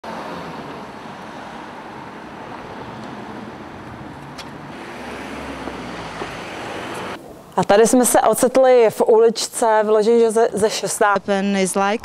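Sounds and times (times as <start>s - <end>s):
city street traffic: 0.0s - 7.7s.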